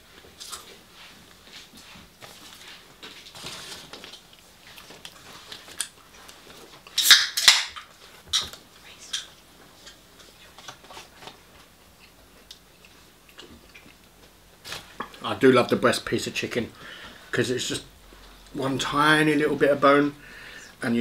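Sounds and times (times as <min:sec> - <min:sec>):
chewing crunchy fried food: 0:11.9 - 0:15.2.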